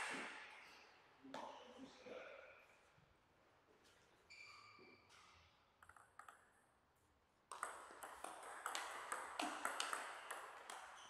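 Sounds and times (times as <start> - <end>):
ping pong ball tapping: 5.8 - 6.5, 7.5 - 11.0
ping pong ball clicking off bats: 5.8 - 6.7, 7.5 - 11.0.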